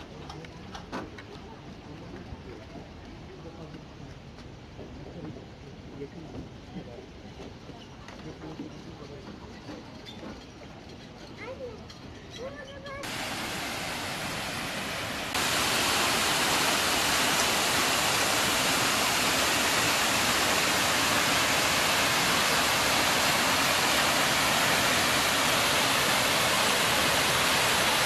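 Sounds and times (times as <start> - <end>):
waterfall splashing into pond: 13.0 - 28.0.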